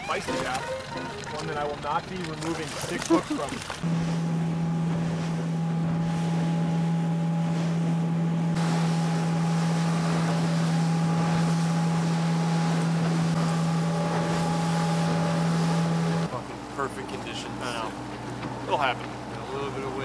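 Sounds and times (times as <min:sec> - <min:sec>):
outboard engine humming: 0:00.0 - 0:20.0
wind and water rushing: 0:02.6 - 0:20.0.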